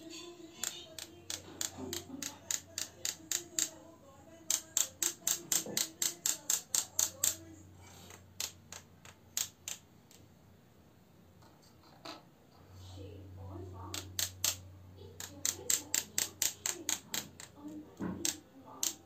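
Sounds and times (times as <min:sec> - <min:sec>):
paintbrush tapping on pen: 0:00.6 - 0:03.8, 0:04.4 - 0:07.4, 0:15.2 - 0:19.0.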